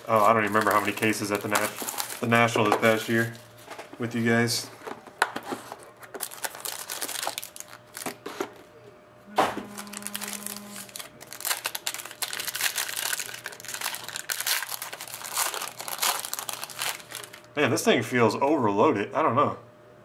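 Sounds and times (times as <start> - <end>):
foil wrapper crinkling: 0.0 - 3.6, 5.3 - 8.4, 9.7 - 17.6.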